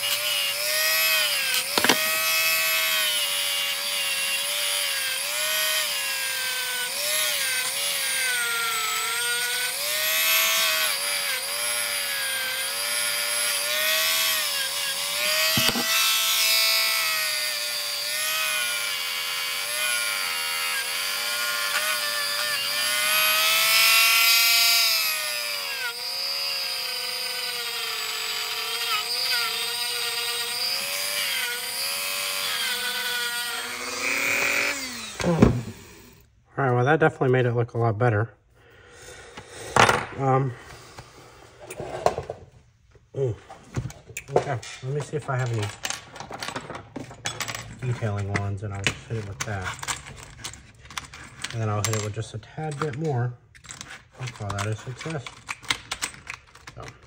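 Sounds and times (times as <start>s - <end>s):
rotary tool whining on metal: 0.0s - 36.3s.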